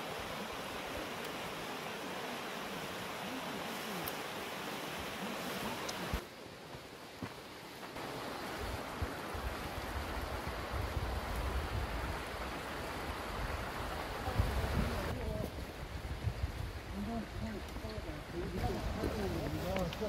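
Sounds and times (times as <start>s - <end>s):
stream rushing over rocks: 0.0s - 20.0s
wind buffeting microphone: 13.3s - 20.0s.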